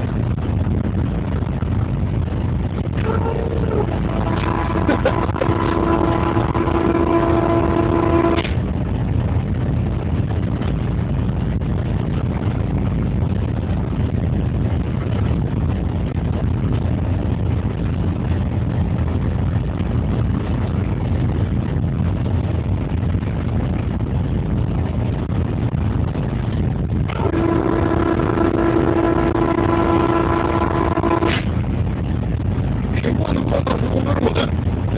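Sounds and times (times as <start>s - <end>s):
locomotive engine and wheels rumbling: 0.0s - 34.9s
pitched signal tone: 3.0s - 8.4s.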